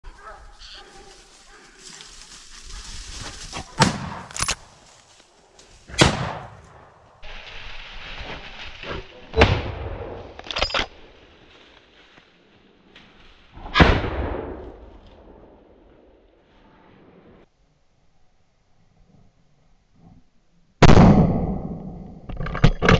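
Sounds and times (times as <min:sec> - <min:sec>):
rifle shots echoing: 0:03.8 - 0:04.8, 0:05.9 - 0:06.9.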